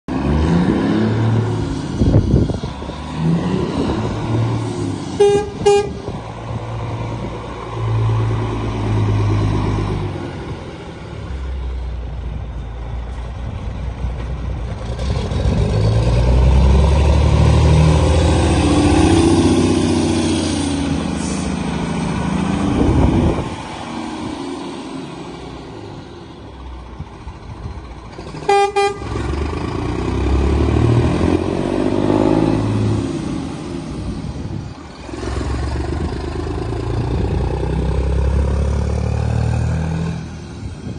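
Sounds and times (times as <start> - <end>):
diesel lorry engine running: 0.1 - 40.9
lorry horn toots: 5.2 - 6.2, 28.4 - 29.2.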